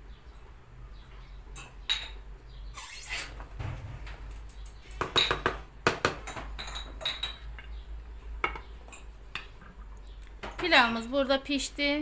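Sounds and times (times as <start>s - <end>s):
dishes and cutlery clinking: 6.2s - 7.8s.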